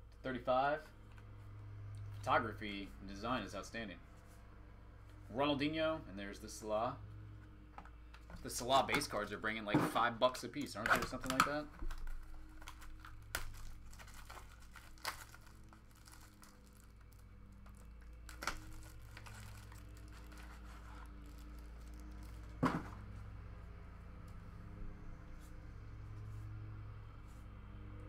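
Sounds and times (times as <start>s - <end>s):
cards being handled: 10.6s - 17.1s
plastic wrapping crinkling and tearing: 10.6s - 22.6s.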